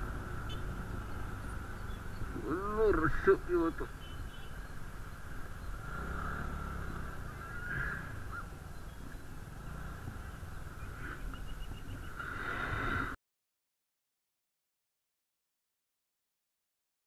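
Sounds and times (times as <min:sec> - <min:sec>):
vehicle horns honking: 0:00.4 - 0:00.8, 0:03.9 - 0:04.6.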